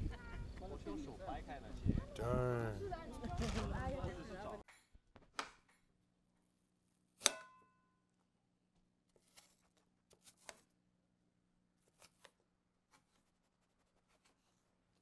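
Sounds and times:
plate ringing: 7.3s - 8.0s.

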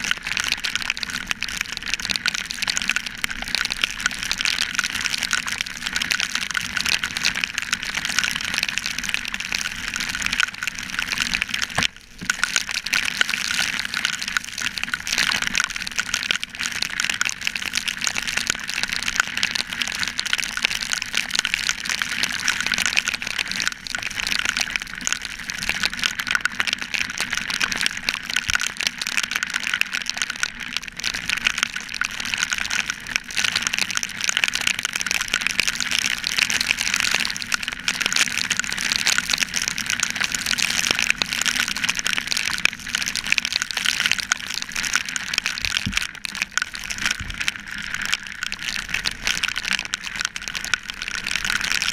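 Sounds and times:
rain hitting camera housing: 11.5s - 12.8s.

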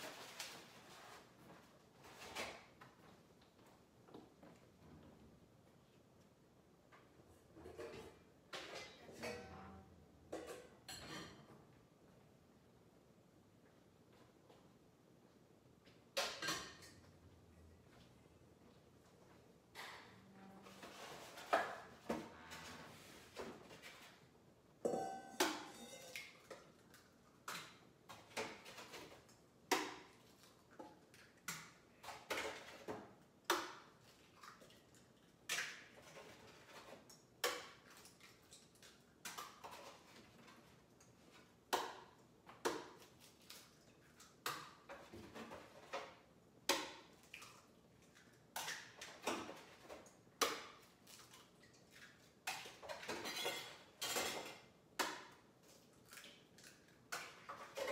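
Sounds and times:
metal bowl ringing: 24.9s - 26.2s.

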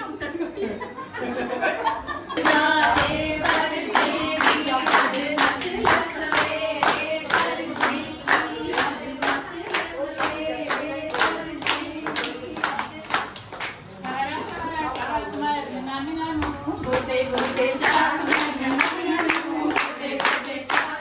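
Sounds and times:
people singing folk song together: 2.4s - 13.0s, 16.6s - 21.0s
hand clapping: 2.4s - 15.1s, 16.4s - 21.0s.

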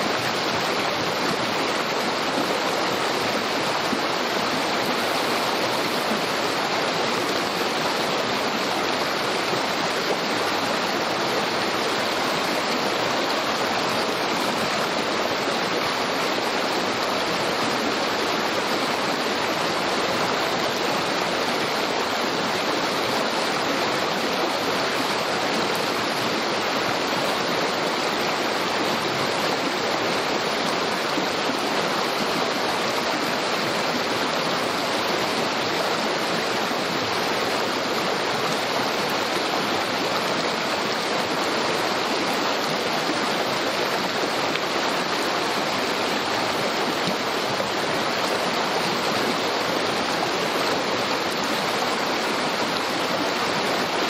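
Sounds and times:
creek rushing and babbling: 0.0s - 54.0s.

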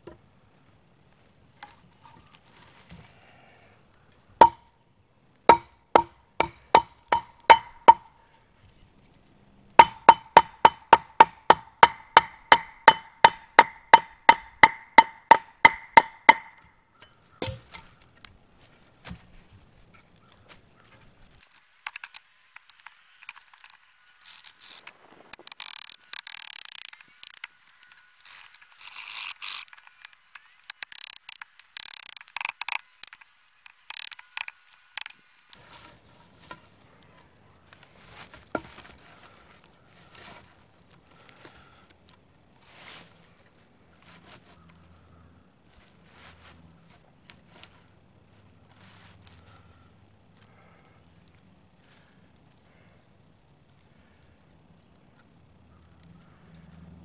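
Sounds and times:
mallet knocking on hatchet: 4.4s - 4.6s, 5.5s - 8.1s, 9.8s - 16.5s, 17.4s - 17.6s.

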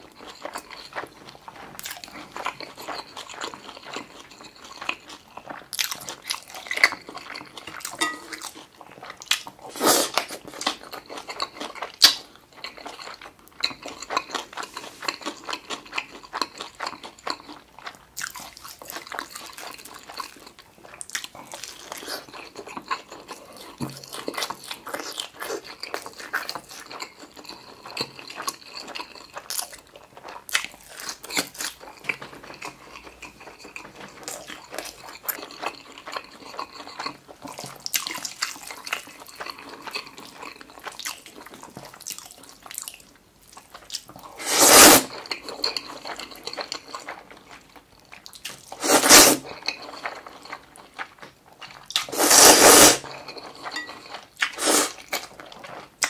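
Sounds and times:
chewing and wet mouth sounds: 0.0s - 56.0s
noodle slurps: 9.6s - 10.5s, 44.3s - 45.2s, 48.7s - 49.6s, 52.0s - 53.4s, 54.4s - 55.2s.

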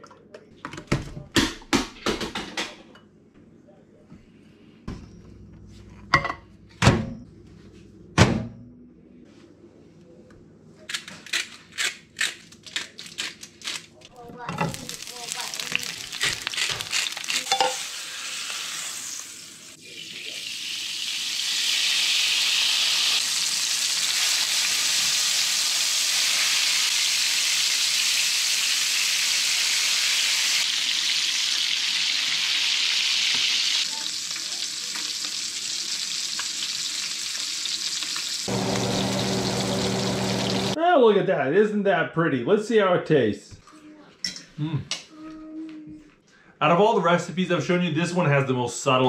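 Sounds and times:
crackling spatters: 14.8s - 17.5s
fish sizzling in butter: 14.8s - 40.8s.

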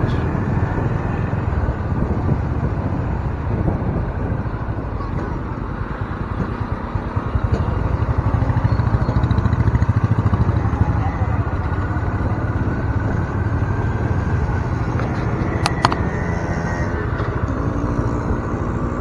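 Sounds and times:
wind noise on microphone: 0.0s - 8.2s
motorcycle engine running: 5.7s - 19.0s.

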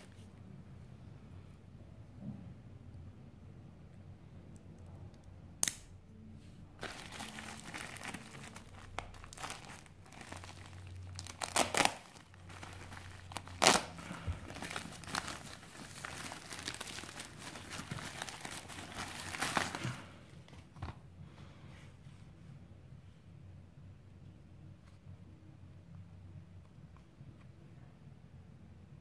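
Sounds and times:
plastic envelope crinkling and tearing: 6.8s - 20.2s.

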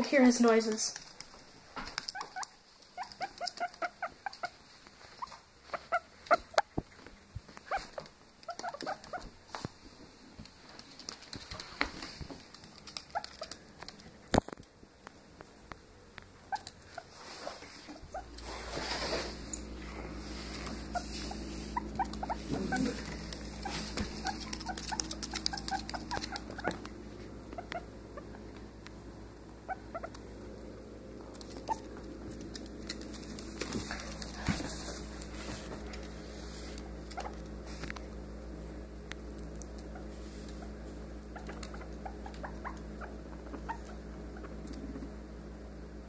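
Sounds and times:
claws clicking on hardwood floor: 0.9s - 5.4s, 6.2s - 17.1s, 20.6s - 27.8s, 31.3s - 36.1s
guinea pig squeaking: 2.0s - 6.8s, 7.6s - 9.4s, 12.5s - 14.4s, 16.4s - 19.8s, 20.6s - 28.5s, 29.6s - 30.3s, 31.3s - 34.4s, 36.7s - 37.5s, 39.4s - 45.2s.

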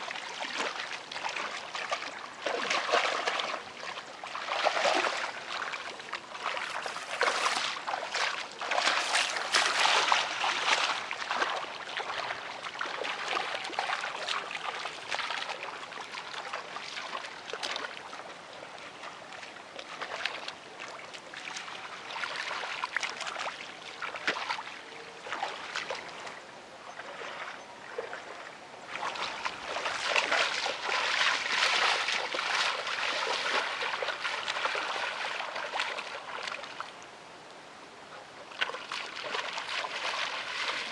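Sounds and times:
bare feet wading through muddy water: 0.0s - 37.1s, 38.0s - 40.9s.

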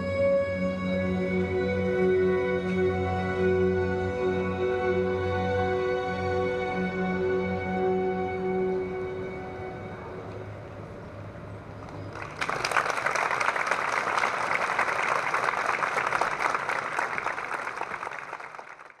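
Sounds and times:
audience applauding: 12.1s - 19.0s.

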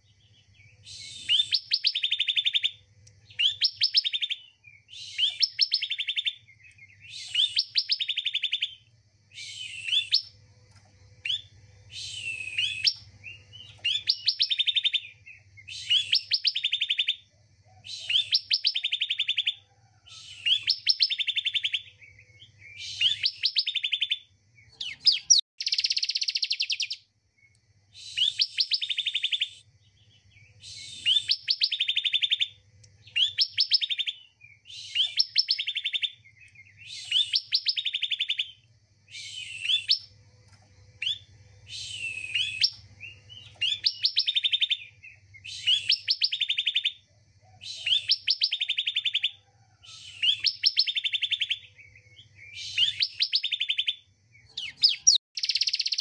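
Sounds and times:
bird singing trilled phrases: 0.0s - 56.0s.

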